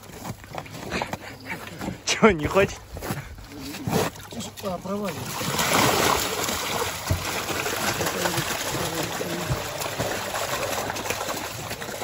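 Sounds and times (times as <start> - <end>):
water pouring and splashing: 3.4 - 12.0.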